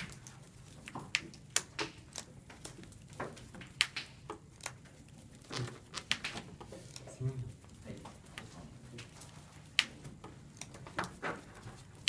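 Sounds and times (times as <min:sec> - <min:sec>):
cards clicking and tapping: 0:00.0 - 0:07.1.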